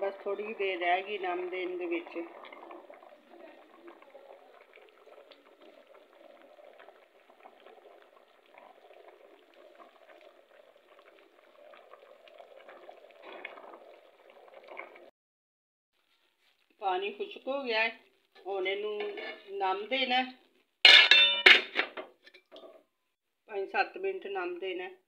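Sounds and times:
rice and water boiling in pot: 0:00.0 - 0:15.1, 0:16.0 - 0:20.8.

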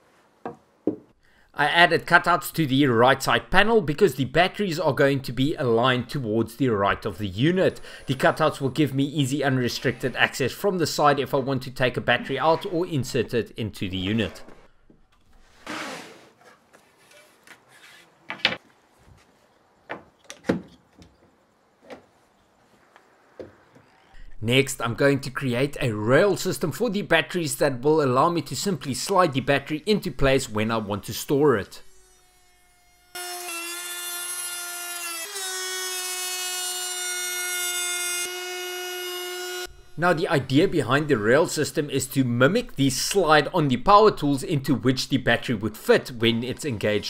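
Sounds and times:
wood scraping on bench: 0:14.1 - 0:19.3
trim router cutting wood: 0:31.8 - 0:41.3.

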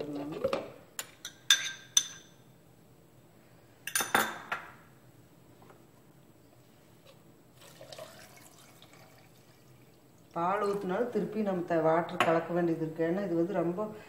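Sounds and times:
milk pouring into blender cup: 0:07.6 - 0:10.8.

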